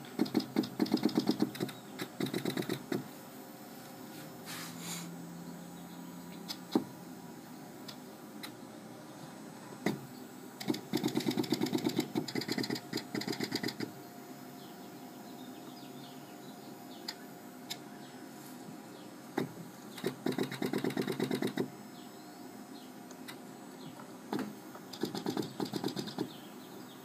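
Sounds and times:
single mechanical clicks: 0:00.2 - 0:03.0, 0:06.3 - 0:06.9, 0:10.6 - 0:13.9, 0:24.3 - 0:26.4.

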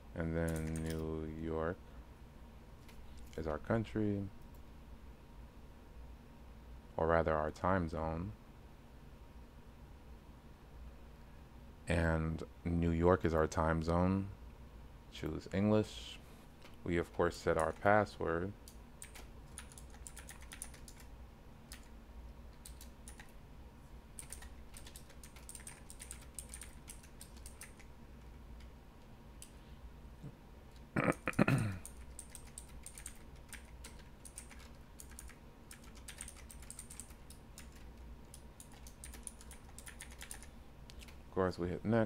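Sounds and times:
keyboard typing: 0:00.5 - 0:01.0, 0:17.5 - 0:17.9, 0:18.6 - 0:21.1, 0:21.7 - 0:23.4, 0:24.2 - 0:28.7, 0:31.8 - 0:41.2.

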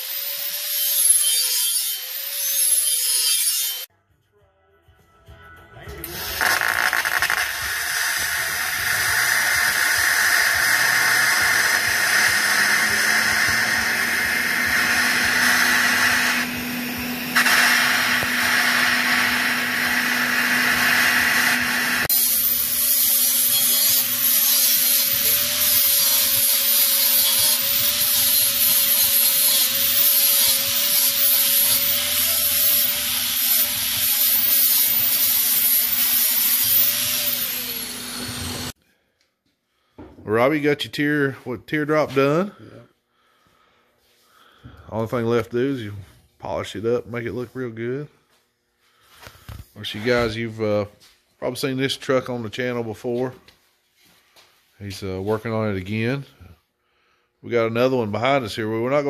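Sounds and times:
grinder polishing metal pipe: 0:00.0 - 0:03.9, 0:06.0 - 0:38.8
welding arc hiss: 0:06.4 - 0:14.0.

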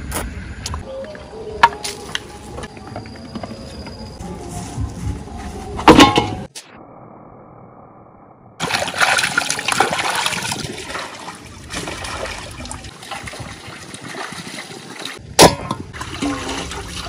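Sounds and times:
water sloshing and splashing: 0:08.6 - 0:17.0.

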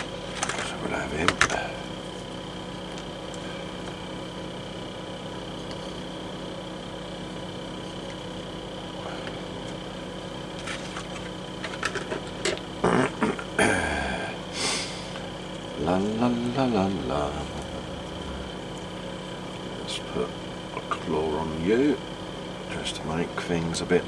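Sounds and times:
steady mechanical hum: 0:00.0 - 0:24.0.

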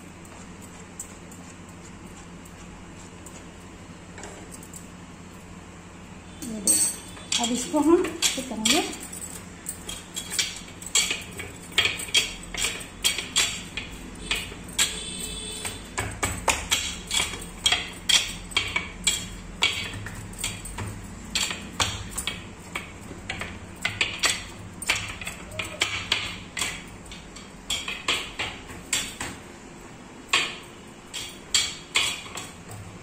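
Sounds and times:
bangles clinking: 0:06.4 - 0:33.0
hands patting dough on steel plate: 0:09.9 - 0:29.4.

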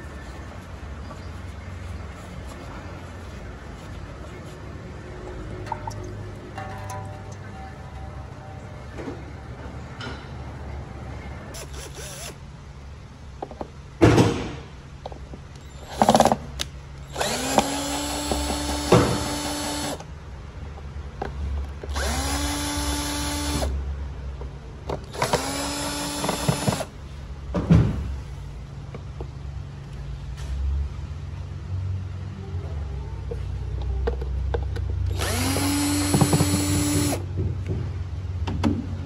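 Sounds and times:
knocks and clatters: 0:05.4 - 0:10.4
cordless drill motor whine: 0:11.6 - 0:12.4, 0:17.1 - 0:20.0, 0:21.9 - 0:23.7, 0:25.1 - 0:26.9, 0:35.1 - 0:37.2.

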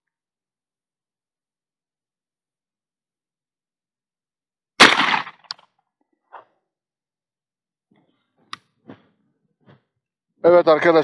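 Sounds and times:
shotgun shot: 0:04.8 - 0:05.5
sharp click: 0:05.0 - 0:05.7.

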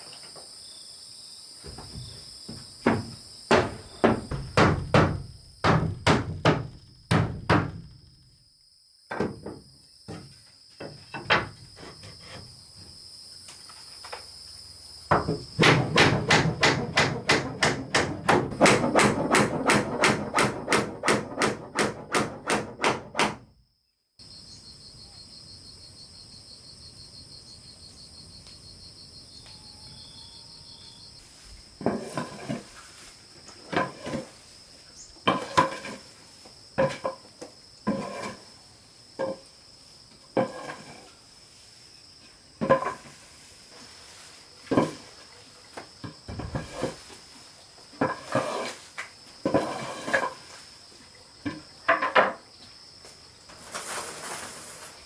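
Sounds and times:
insects chirping: 0:00.0 - 0:55.0
wooden knocks: 0:01.7 - 0:07.8, 0:09.1 - 0:11.6, 0:15.1 - 0:23.4
hammer striking wood: 0:02.8 - 0:07.9, 0:15.1 - 0:23.5.

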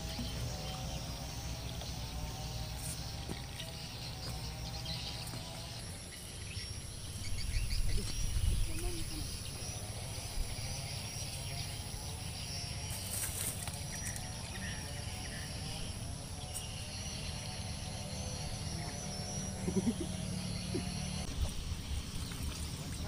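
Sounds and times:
high insect drone: 0:00.0 - 0:22.8
wind rumble on microphone: 0:07.2 - 0:10.8.

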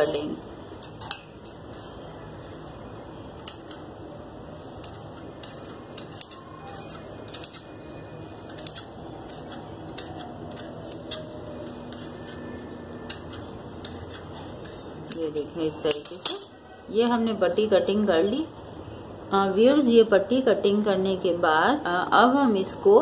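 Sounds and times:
shears cutting cloth: 0:08.4 - 0:16.4.

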